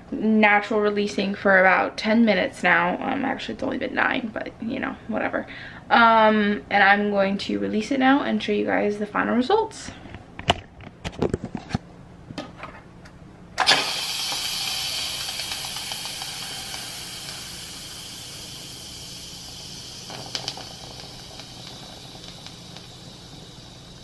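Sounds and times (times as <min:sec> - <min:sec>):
pressure cooker steam hissing: 0:13.6 - 0:24.0.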